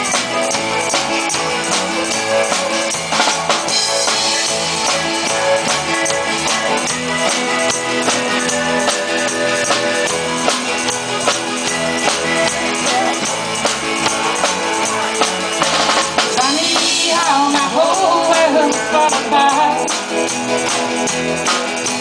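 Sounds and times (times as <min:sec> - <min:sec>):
country-rock band playing: 0:00.0 - 0:22.0
woman singing: 0:12.5 - 0:13.4, 0:16.4 - 0:20.0.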